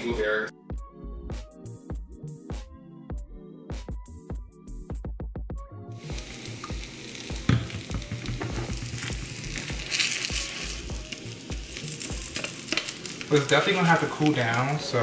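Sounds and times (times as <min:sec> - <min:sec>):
background music with steady beat: 0:00.0 - 0:15.0
food sizzling in frying pan: 0:06.0 - 0:15.0.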